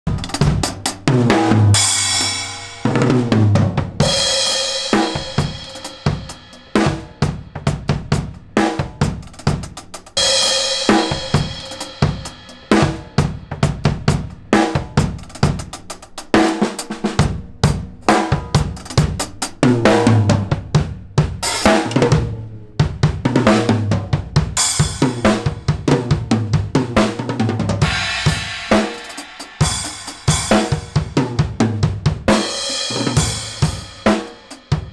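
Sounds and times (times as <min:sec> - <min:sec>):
drum kit playing: 0:00.0 - 0:34.9
cymbal crashes: 0:27.8 - 0:30.7.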